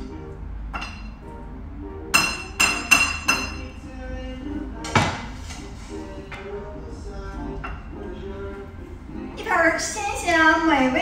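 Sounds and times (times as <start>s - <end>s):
background music: 0.0s - 11.0s
spatula clinking on frying pan: 2.2s - 3.7s.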